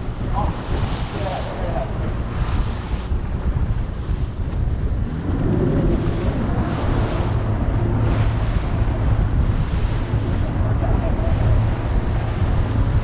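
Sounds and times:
sea wash: 0:00.0 - 0:13.0
wind buffeting microphone: 0:00.0 - 0:13.0.

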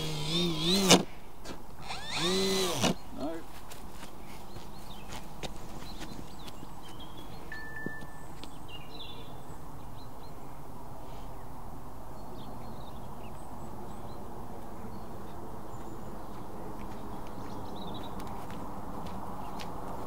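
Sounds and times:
bird chirps: 0:05.8 - 0:10.4.

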